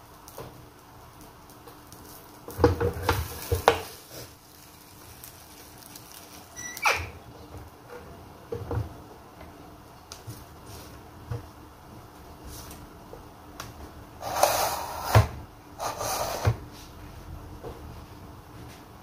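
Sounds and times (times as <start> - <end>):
wafers rustling and scraping: 14.2 - 16.9.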